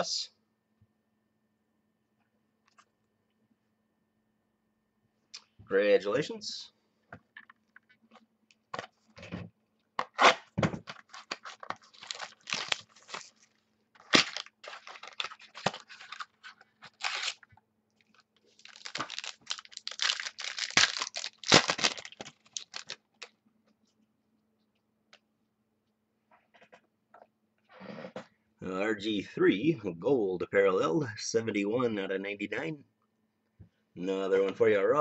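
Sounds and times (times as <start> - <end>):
card packaging torn and crinkled: 10.0 - 23.3.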